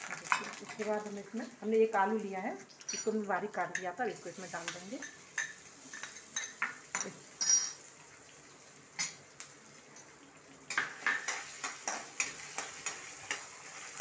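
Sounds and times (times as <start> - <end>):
metal bowl clinking on pan: 5.0 - 7.8.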